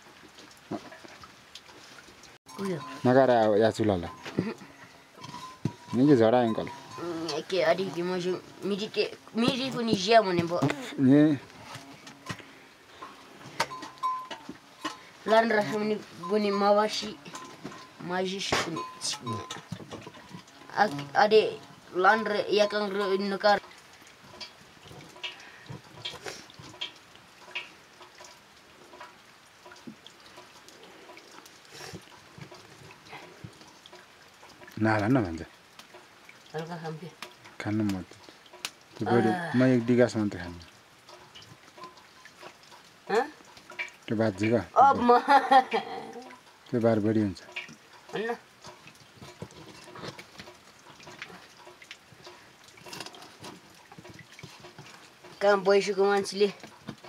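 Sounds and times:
wooden spatula scraping metal pot: 0:04.0 - 0:08.0, 0:48.7 - 0:50.4.

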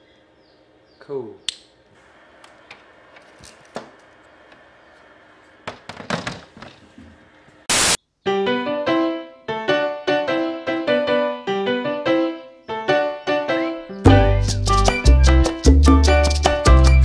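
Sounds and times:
plastic knocks and clatter: 0:05.7 - 0:07.1
loud burst of noise: 0:07.7 - 0:08.0
piano music: 0:08.3 - 0:17.0.

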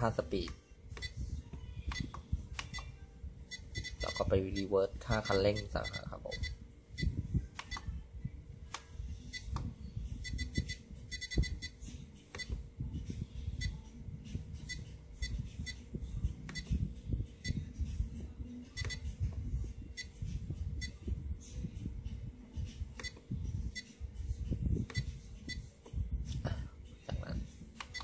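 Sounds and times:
electronic beeps from transmitter: 0:01.0 - 0:01.2, 0:01.9 - 0:02.1, 0:03.5 - 0:07.8, 0:09.3 - 0:09.6, 0:10.2 - 0:12.6, 0:13.6 - 0:13.8, 0:14.6 - 0:15.8, 0:16.5 - 0:16.8, 0:17.4 - 0:17.7, 0:18.8 - 0:19.0, 0:19.9 - 0:20.2, 0:20.8 - 0:21.0, 0:23.0 - 0:23.9, 0:24.9 - 0:25.6.

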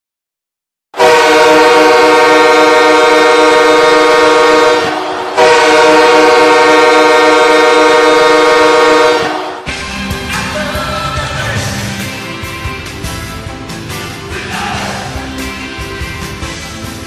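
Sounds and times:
arena goal horn blasts: 0:01.0 - 0:09.7.

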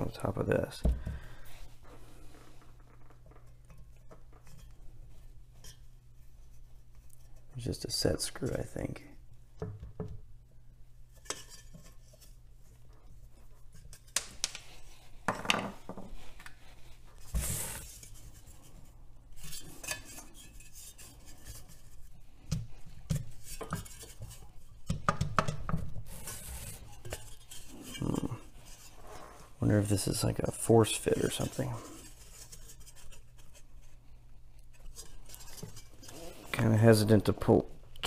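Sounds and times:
metal fan blade clinking and rubbing: 0:16.6 - 0:22.2, 0:26.2 - 0:29.1.

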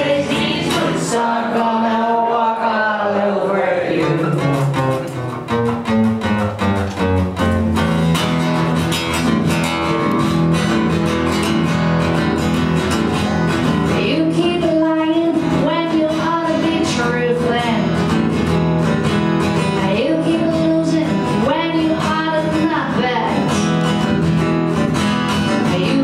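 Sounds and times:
woman singing: 0:00.0 - 0:04.6, 0:13.9 - 0:18.0, 0:19.8 - 0:23.6, 0:25.6 - 0:26.0
acoustic guitar strumming: 0:00.0 - 0:26.0.

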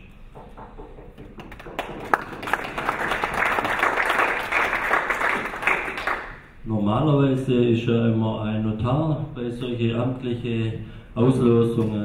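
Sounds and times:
audience applauding: 0:01.3 - 0:06.5.

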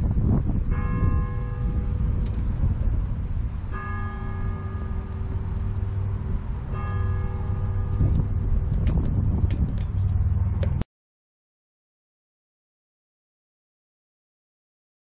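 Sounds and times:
wind rumble on microphone: 0:00.0 - 0:10.8
church bell tolling: 0:00.6 - 0:02.9, 0:03.7 - 0:08.6.

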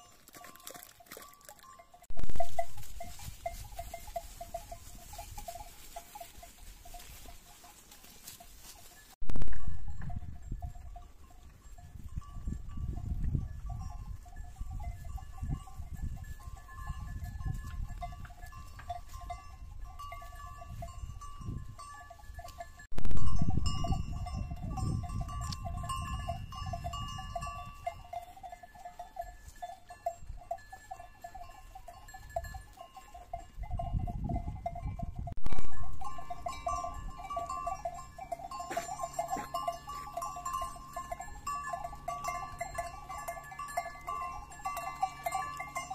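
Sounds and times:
sheep bells ringing: 0:00.0 - 0:45.9
wind rumble on microphone: 0:09.2 - 0:28.3, 0:33.2 - 0:38.0.

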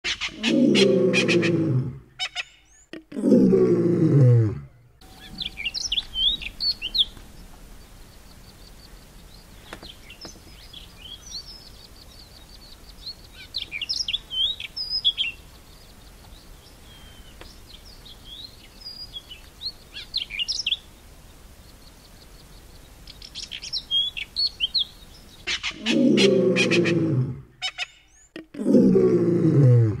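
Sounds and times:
lark singing: 0:05.0 - 0:07.2.

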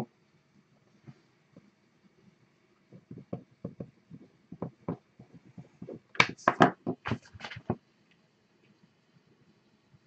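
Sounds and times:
small objects knocking on desk: 0:02.9 - 0:07.8.

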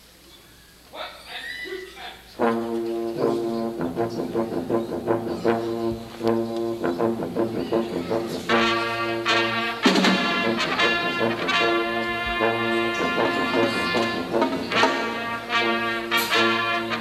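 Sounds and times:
marching band brass chords: 0:02.4 - 0:17.0.

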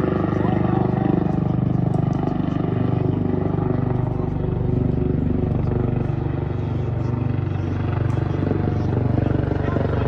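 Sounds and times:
low pulsing engine drone: 0:00.0 - 0:10.0.

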